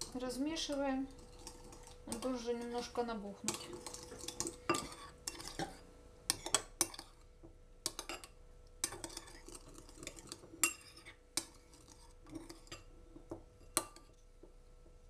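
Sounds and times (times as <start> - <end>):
spoon clinking in ceramic bowl: 3.5 - 7.1.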